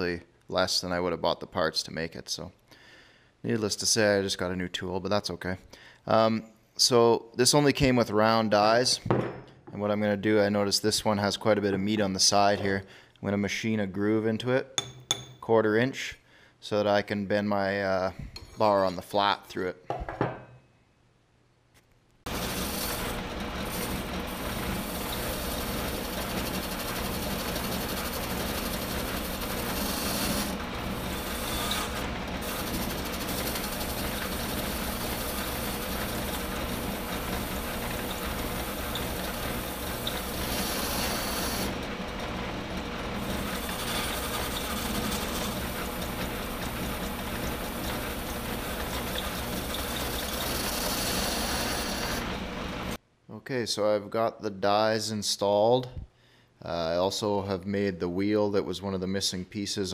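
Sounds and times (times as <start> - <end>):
metal lathe machining: 22.3 - 53.0.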